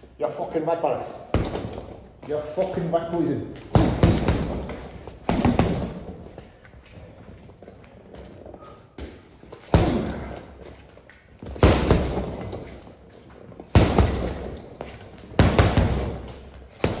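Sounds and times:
punching bag being struck: 1.3s - 2.1s, 3.7s - 6.2s, 9.7s - 10.4s, 11.4s - 12.7s, 13.7s - 17.0s.

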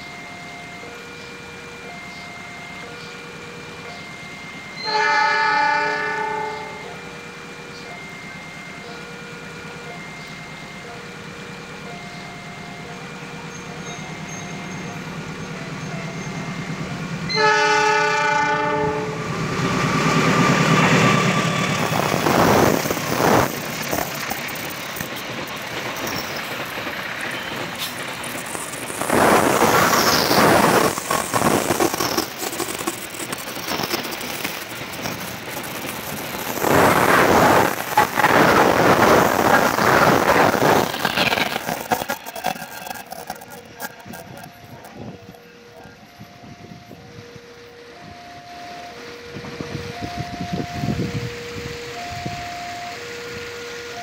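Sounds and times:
freight wagons rumbling on rails: 0.0s - 54.0s
locomotive engine: 0.0s - 54.0s
train horn: 4.8s - 7.3s, 17.3s - 19.5s, 44.9s - 54.0s.

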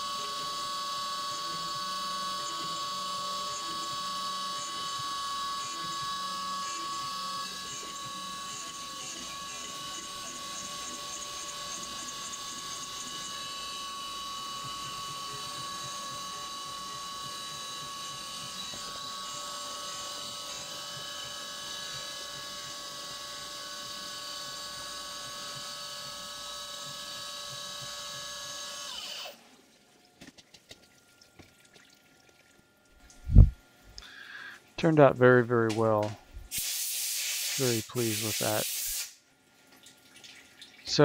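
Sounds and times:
milling machine spindle whine: 0.0s - 29.4s
faint clicks and drips: 29.9s - 33.2s, 39.5s - 41.0s.

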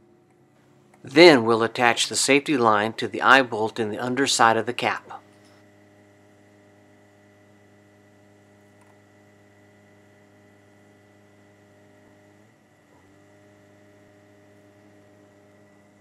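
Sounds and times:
faint electrical hum: 0.0s - 16.0s.

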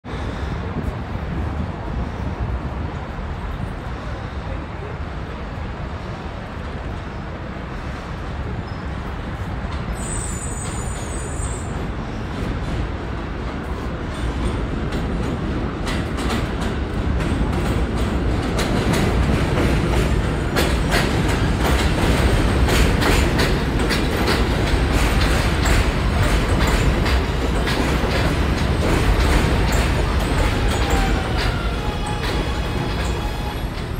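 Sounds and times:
subway train rumbling: 0.0s - 33.9s
wheels clicking over rail joints: 13.6s - 33.9s.

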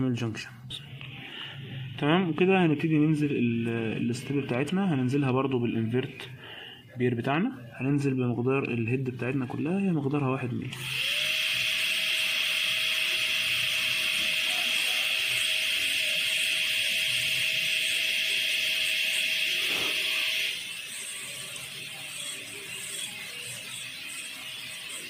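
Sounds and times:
dental drill whining: 0.9s - 5.3s, 10.7s - 25.0s.

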